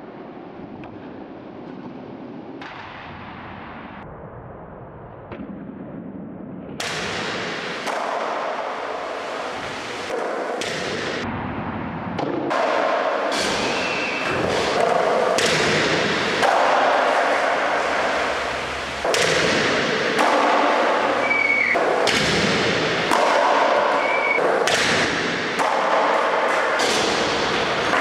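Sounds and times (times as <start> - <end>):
skater falling: 12.3 - 28.0
skateboard wheels rolling on concrete: 13.2 - 28.0.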